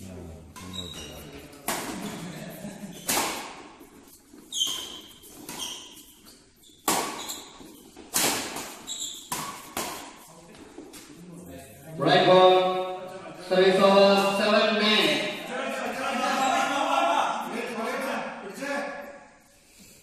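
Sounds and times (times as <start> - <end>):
shoes squeaking on court: 0.6 - 11.1
rackets striking shuttlecock: 6.8 - 10.2.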